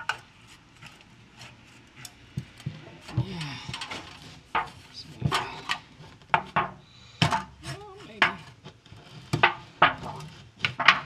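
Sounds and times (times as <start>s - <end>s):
metallic clanks and rattles: 9.3s - 11.0s.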